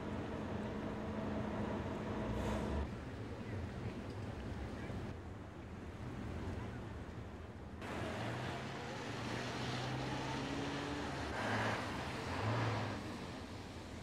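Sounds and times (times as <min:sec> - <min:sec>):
cars passing: 0:07.8 - 0:14.0.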